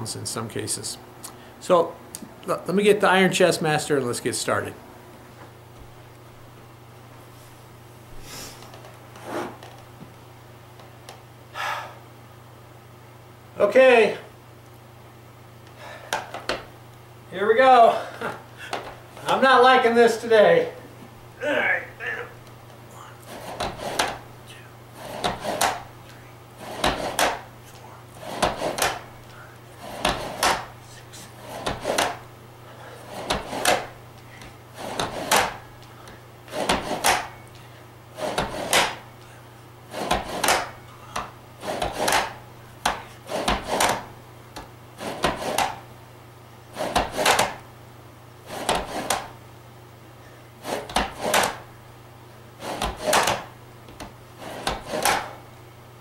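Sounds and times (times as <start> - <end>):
push-up handles sliding on metal track: 8.6 - 9.8, 23.2 - 24.2, 24.9 - 25.9, 26.6 - 27.5, 28.1 - 35.7, 36.4 - 37.4, 38.1 - 39.1, 39.9 - 44.2, 45.0 - 45.8, 46.7 - 47.6, 48.4 - 49.4, 50.6 - 51.7, 52.6 - 53.6, 54.4 - 55.4.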